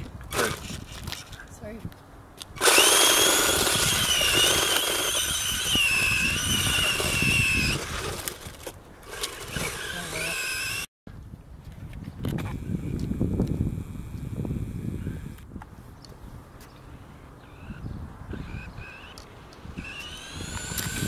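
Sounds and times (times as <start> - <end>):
toy truck motor whining: 2.6 - 10.9, 12.5 - 15.4, 19.8 - 21.0.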